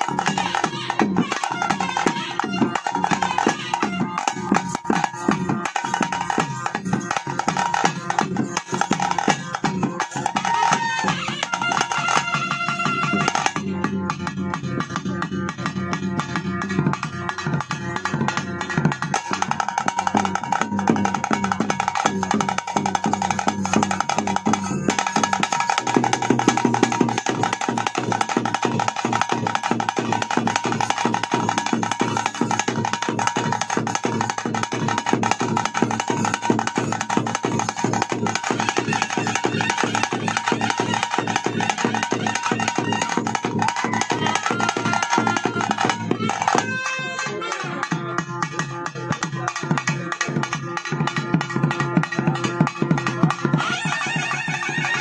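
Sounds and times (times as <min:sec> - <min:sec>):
rapid drumming: 0:00.0 - 0:55.0
wind instrument holding a note: 0:00.3 - 0:04.5, 0:10.3 - 0:13.8, 0:38.5 - 0:49.2, 0:53.4 - 0:55.0.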